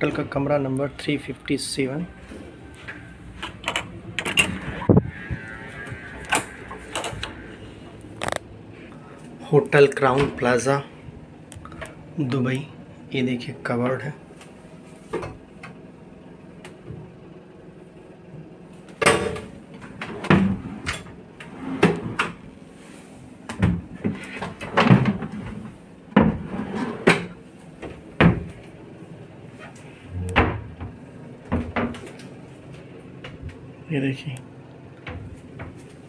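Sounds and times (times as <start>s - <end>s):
wardrobe doors opening and shutting: 2.2s - 8.5s, 30.1s - 32.2s.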